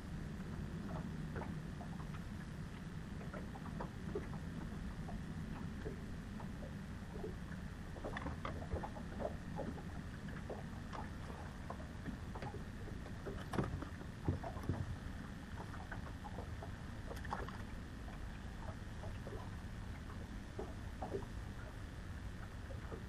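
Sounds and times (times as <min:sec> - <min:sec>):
waves lapping against boat hull: 0:00.0 - 0:23.0
light knocks on hull: 0:11.7 - 0:15.0.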